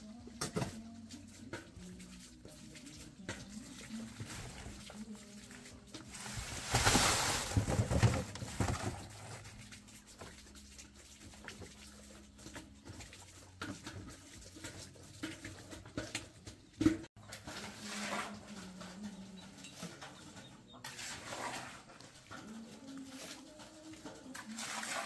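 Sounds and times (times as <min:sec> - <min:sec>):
wet concrete rushing and splattering: 0:05.6 - 0:10.0.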